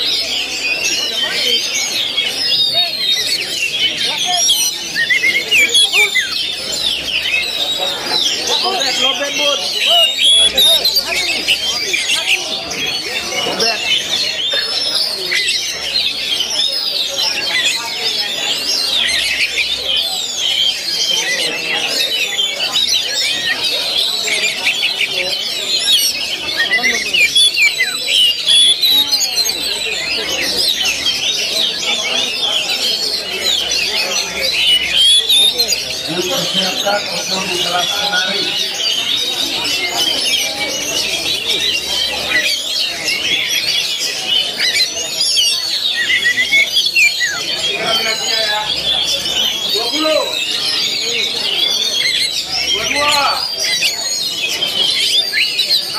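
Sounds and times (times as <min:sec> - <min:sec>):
birds singing chorus: 0:00.0 - 0:55.9.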